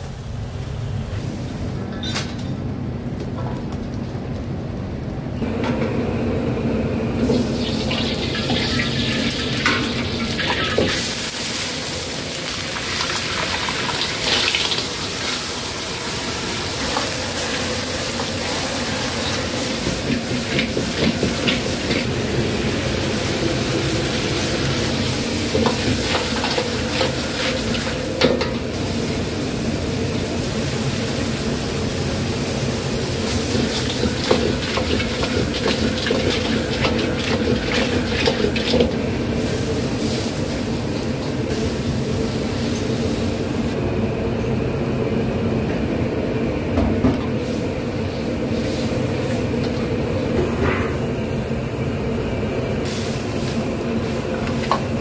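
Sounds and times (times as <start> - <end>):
food sizzling in a wok: 7.1 - 43.8, 47.4 - 49.6, 52.8 - 55.0.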